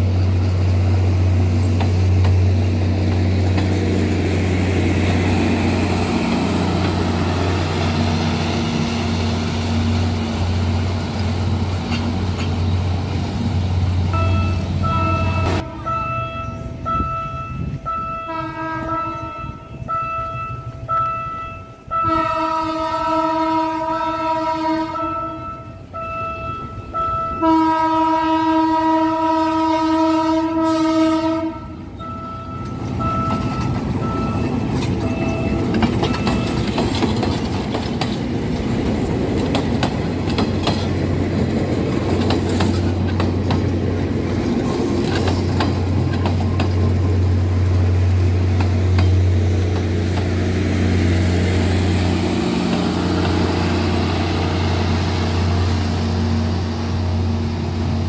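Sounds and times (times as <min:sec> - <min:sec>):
train wheels clacking over rail joints: 0:01.5 - 0:08.9, 0:09.7 - 0:13.1, 0:32.6 - 0:50.5
train horn blasts: 0:14.1 - 0:36.6.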